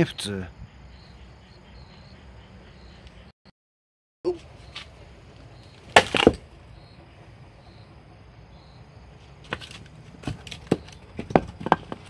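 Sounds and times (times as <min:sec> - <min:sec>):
firewood knocking together: 0:05.9 - 0:06.4, 0:09.5 - 0:12.0.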